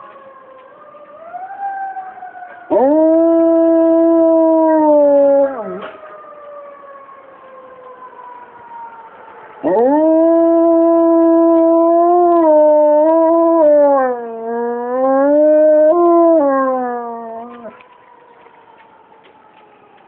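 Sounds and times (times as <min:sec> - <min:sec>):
siren wailing: 0:00.0 - 0:20.0
dog howling: 0:02.5 - 0:05.9, 0:09.6 - 0:17.8.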